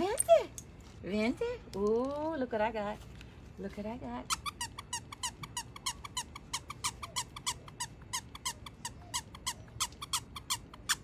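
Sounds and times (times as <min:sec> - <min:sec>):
dog toy squeaking: 0:04.2 - 0:11.0.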